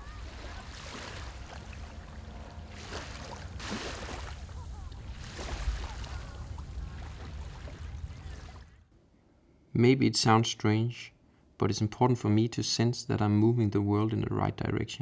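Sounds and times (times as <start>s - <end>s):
sea water churning and splashing: 0.0s - 8.8s
steady low rumble: 0.0s - 8.9s.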